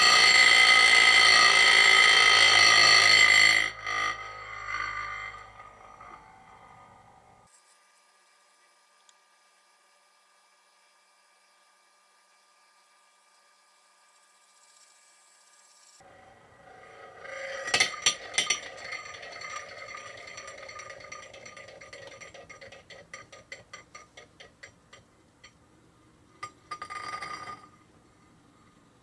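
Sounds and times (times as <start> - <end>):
spinning top whirring and rattling: 0.0 - 7.9, 9.8 - 25.6
spinning top ticking and clattering: 16.8 - 25.6.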